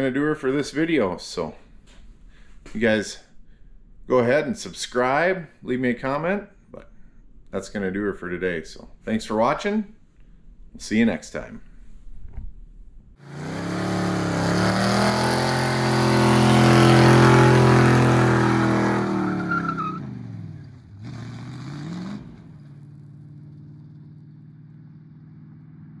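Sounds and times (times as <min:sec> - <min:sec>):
truck engine revving: 0:13.2 - 0:25.2
tyres spinning and squealing: 0:13.3 - 0:20.2.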